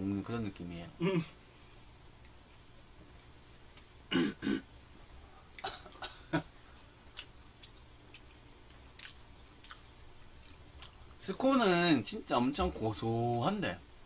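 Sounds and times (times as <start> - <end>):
man clearing his throat: 1.0 - 1.3, 4.1 - 4.7, 5.6 - 6.5
mouth clicks and chewing smacks: 6.6 - 11.2.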